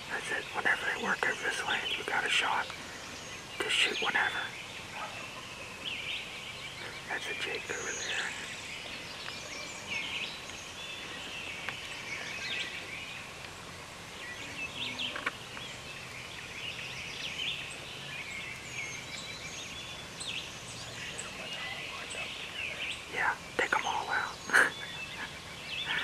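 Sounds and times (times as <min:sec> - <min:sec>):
songbirds chirping and singing: 0:00.0 - 0:26.0.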